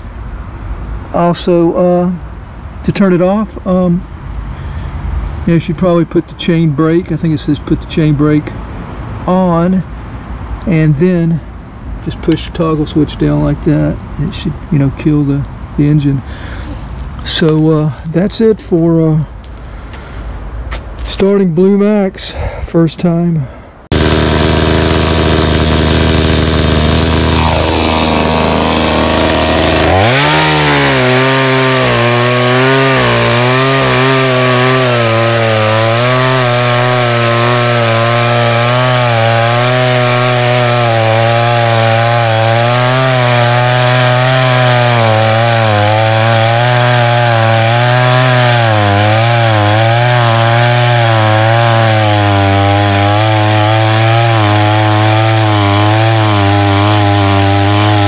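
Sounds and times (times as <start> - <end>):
chainsaw cutting through log: 23.9 - 58.0.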